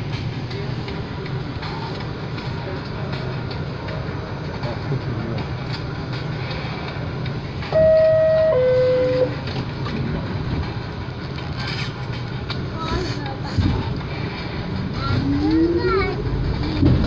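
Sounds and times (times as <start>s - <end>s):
rail clatter: 0.0s - 17.0s
subway train rumble: 0.0s - 17.0s
two-note descending chime: 7.8s - 9.3s.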